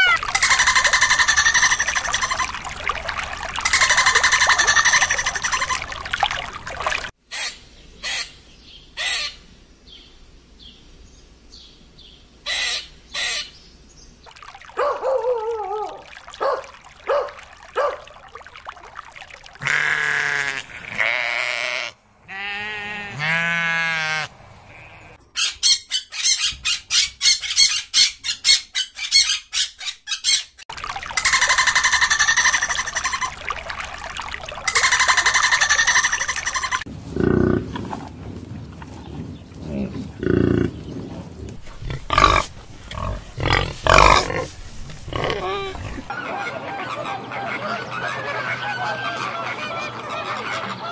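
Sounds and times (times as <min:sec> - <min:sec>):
fast pulsed animal calls: 0:00.0 - 0:07.1, 0:30.8 - 0:36.9.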